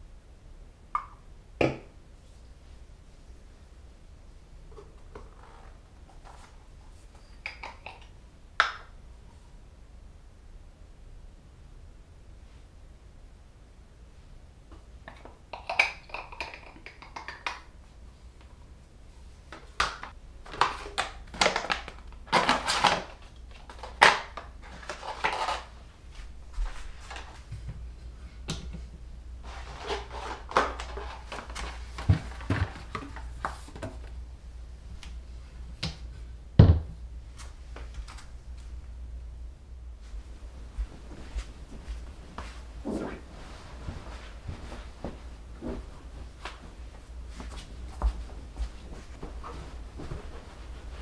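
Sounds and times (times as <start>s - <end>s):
plastic bottles knocking and sliding: 29.4s - 34.1s.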